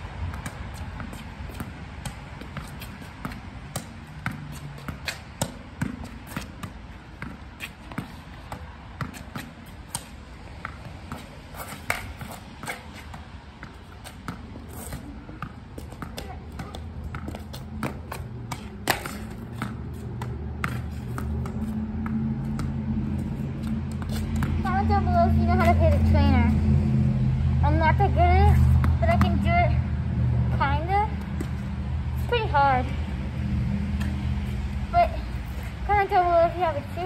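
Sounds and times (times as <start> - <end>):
racket striking tennis ball: 0.4 - 22.7
ball hitting wall and bouncing: 0.4 - 22.9.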